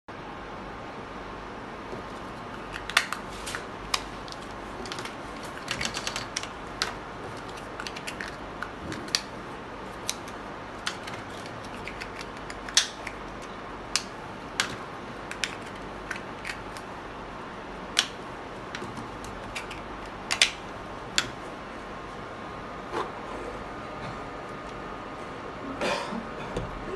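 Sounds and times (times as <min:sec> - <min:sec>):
plastic caps clicking and tapping: 0:02.6 - 0:03.2, 0:03.9 - 0:09.3, 0:10.0 - 0:13.2, 0:14.0 - 0:16.8, 0:18.0 - 0:20.6.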